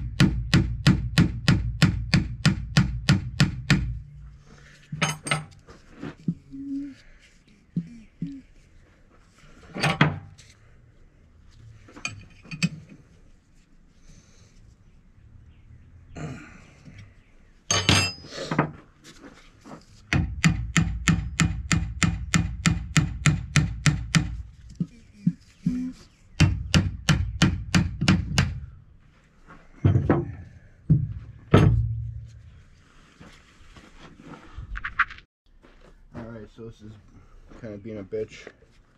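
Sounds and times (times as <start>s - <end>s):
impact wrench hammering: 0.0s - 4.1s, 20.1s - 24.4s, 26.4s - 28.7s
metallic tool clanks: 4.9s - 5.6s, 17.7s - 18.3s.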